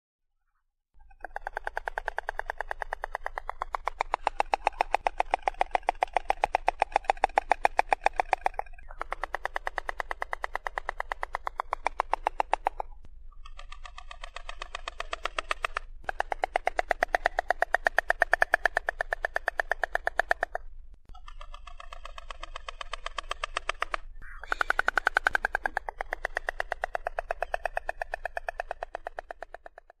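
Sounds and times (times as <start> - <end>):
stork bill clattering: 1.2 - 29.9.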